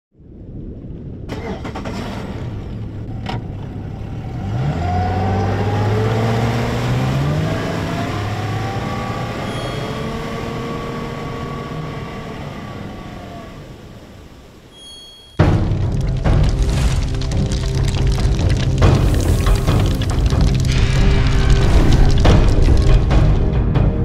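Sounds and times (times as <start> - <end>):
engine revving: 3.8 - 13.1.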